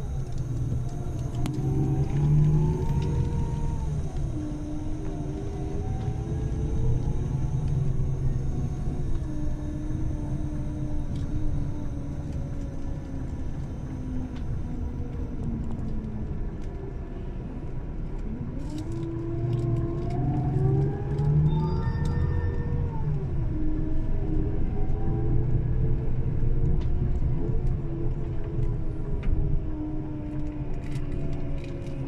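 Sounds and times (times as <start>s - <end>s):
bus engine and road rumble: 0.0s - 32.0s
whining tone: 0.0s - 32.0s.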